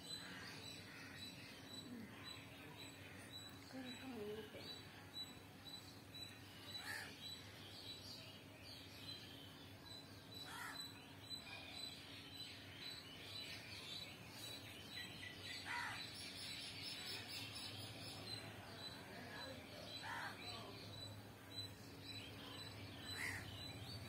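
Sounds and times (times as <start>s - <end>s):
birds chirping: 0.0s - 24.0s.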